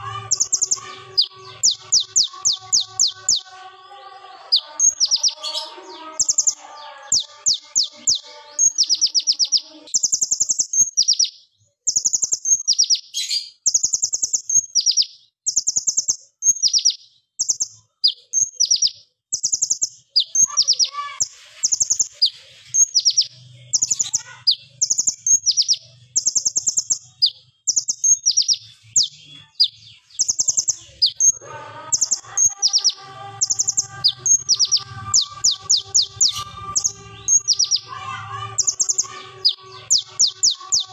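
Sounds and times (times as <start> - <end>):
sunbird singing rattling trills: 0.0 - 3.6, 4.4 - 11.3, 11.9 - 40.9.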